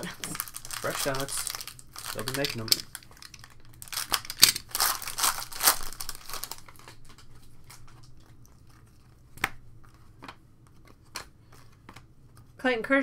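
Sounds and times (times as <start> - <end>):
foil pack crinkling: 0.0 - 9.2
handling cards: 0.0 - 12.6.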